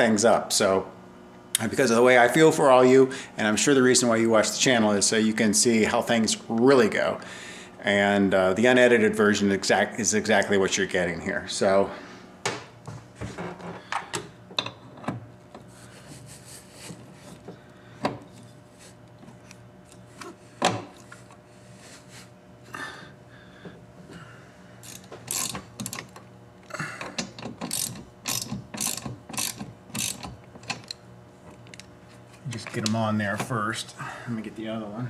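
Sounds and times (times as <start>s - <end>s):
ratchet wrench clicking: 24.8s - 26.2s, 27.2s - 31.0s
tools knocking and clicking: 27.0s - 31.0s.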